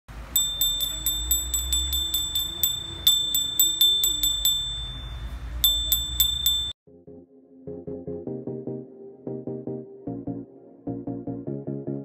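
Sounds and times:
small bell ringing rapidly: 0.3s - 6.8s.

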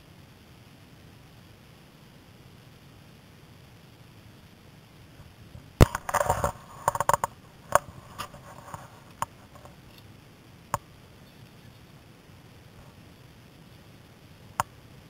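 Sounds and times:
bike clicks and rattles: 5.8s - 10.1s.

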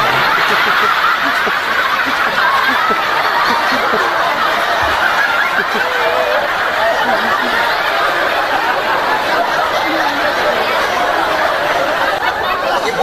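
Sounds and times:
large audience laughing: 0.0s - 13.0s.

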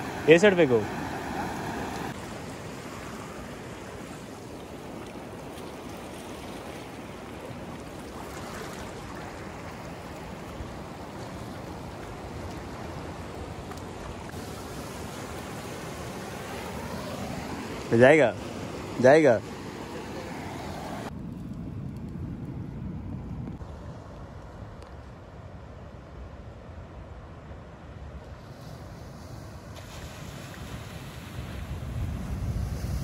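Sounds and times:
surf rushing on a beach: 0.0s - 21.1s, 28.1s - 33.0s.

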